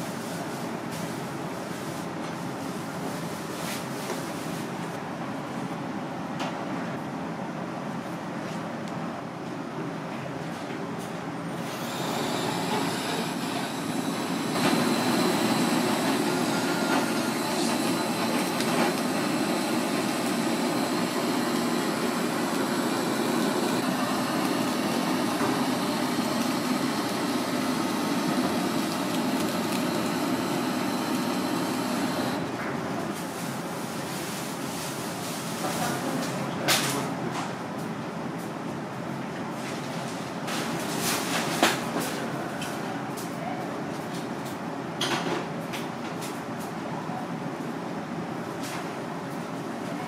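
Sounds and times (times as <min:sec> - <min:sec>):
blowtorch flame hissing: 0:11.5 - 0:32.5.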